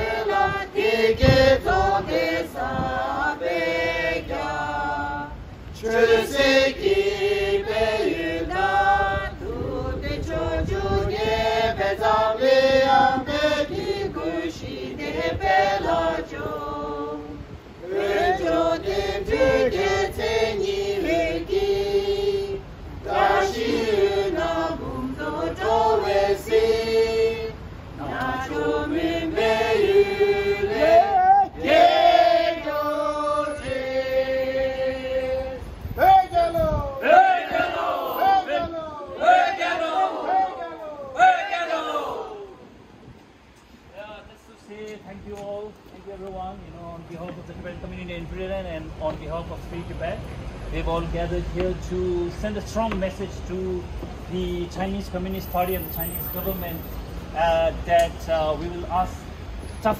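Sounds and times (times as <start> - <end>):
group singing in unison: 0.0 - 35.7, 37.0 - 42.6.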